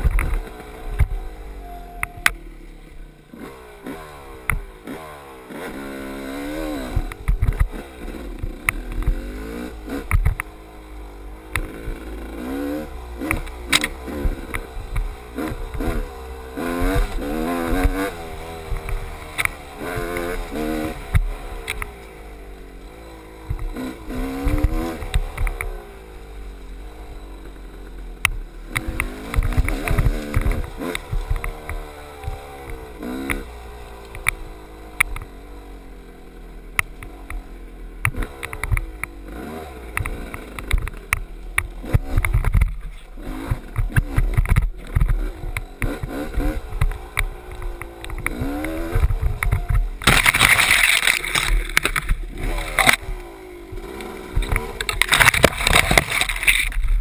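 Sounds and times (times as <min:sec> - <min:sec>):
dirt bike engine revving: 0:00.0 - 0:57.0
bike knocking over rough trail: 0:28.2 - 0:35.3, 0:40.0 - 0:57.0.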